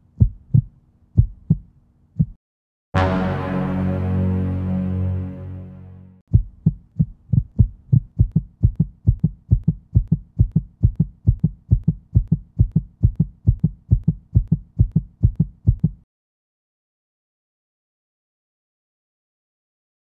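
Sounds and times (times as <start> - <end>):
heartbeat thumps: 0.0 - 2.4, 6.3 - 16.0.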